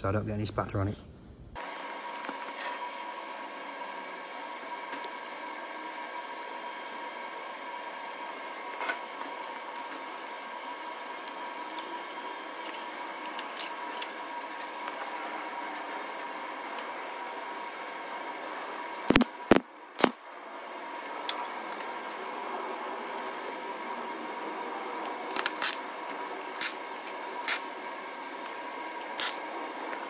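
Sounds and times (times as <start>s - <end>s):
steady hum: 0.0s - 30.0s
welder tack welds: 18.8s - 20.2s, 25.2s - 30.0s.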